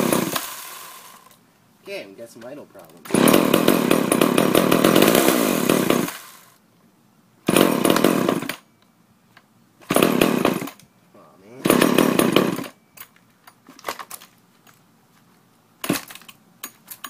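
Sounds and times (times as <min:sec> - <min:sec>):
chainsaw engine sputtering: 0:00.0 - 0:01.3, 0:03.0 - 0:06.6, 0:07.5 - 0:08.6, 0:09.9 - 0:10.8, 0:11.6 - 0:12.8.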